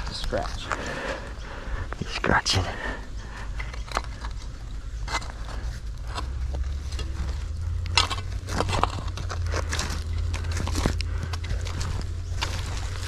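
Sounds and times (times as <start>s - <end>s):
low steady rumble: 0.0s - 13.0s
hand digging in dirt and rubble: 3.5s - 13.0s.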